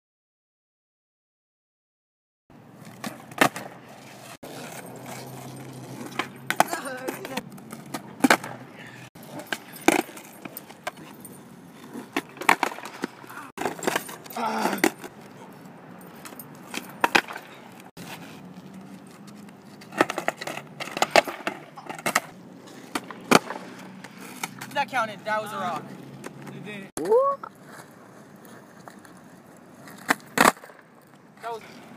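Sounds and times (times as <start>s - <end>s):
skateboard clattering on concrete: 2.8s - 15.4s, 16.1s - 18.2s, 19.4s - 27.0s, 27.6s - 31.9s
skateboard tail popping: 19.9s - 24.7s.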